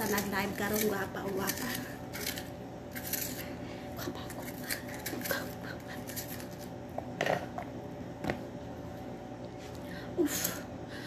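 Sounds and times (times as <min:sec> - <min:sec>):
utensils and dishes clicking: 0:00.0 - 0:03.5
steady low hum: 0:00.0 - 0:11.0.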